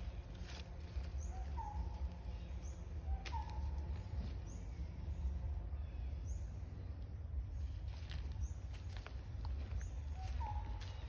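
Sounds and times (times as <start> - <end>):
steady low rumble: 0.0 - 11.0
faint high chirp: 0.9 - 4.8, 7.9 - 11.0
rising whistled calls: 10.1 - 11.0.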